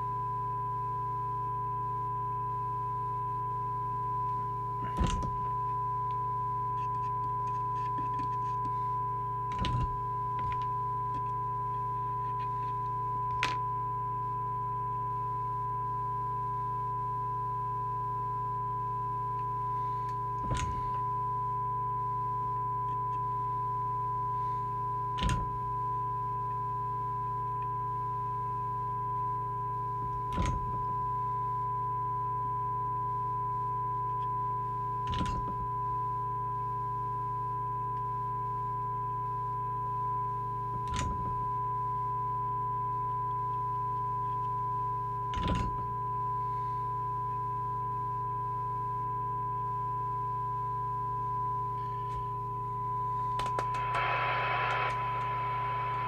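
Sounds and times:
low steady hum: 0:00.0 - 0:56.0
steady test tone from radio speaker: 0:00.0 - 0:56.0
burst of hiss: 0:53.8 - 0:56.0.

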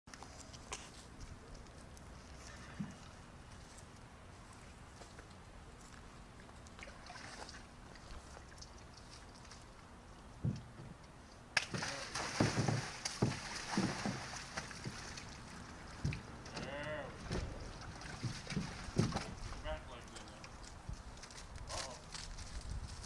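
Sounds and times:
water splashing in a tank: 0:06.8 - 0:09.6, 0:11.6 - 0:19.6
dull knocks of hoof: 0:16.0 - 0:19.4.

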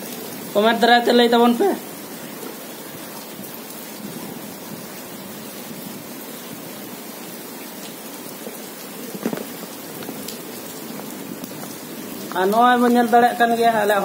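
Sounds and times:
steady rain on wet ground: 0:00.0 - 0:14.0.

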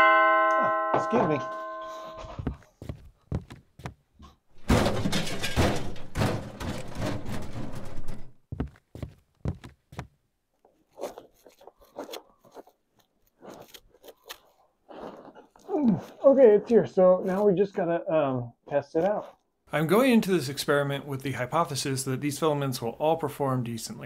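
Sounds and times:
cardboard parcels thudding: 0:04.6 - 0:10.1
clatter: 0:04.7 - 0:08.3.

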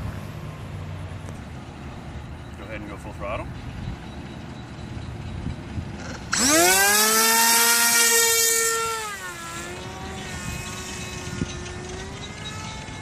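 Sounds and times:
electric motor high whine: 0:06.0 - 0:13.0.

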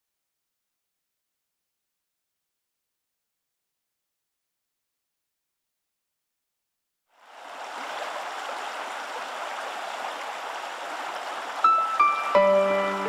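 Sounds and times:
water-like rushing noise: 0:07.1 - 0:13.0
sustained musical notes: 0:11.7 - 0:13.0.

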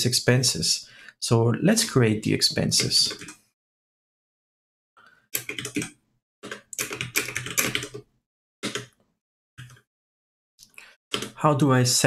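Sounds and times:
typing on computer keyboard: 0:03.1 - 0:03.4, 0:05.4 - 0:09.0, 0:09.6 - 0:09.8, 0:11.1 - 0:11.4.

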